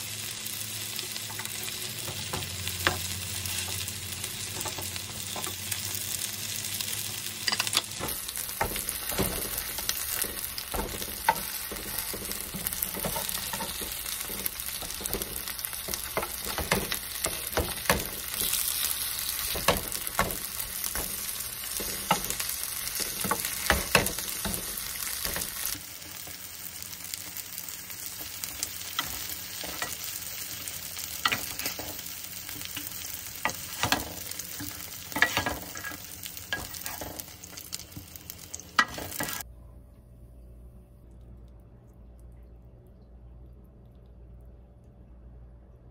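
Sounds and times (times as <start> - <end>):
fritters sizzling in oil: 0.0 - 39.5
spatula scraping a pan: 33.5 - 37.2.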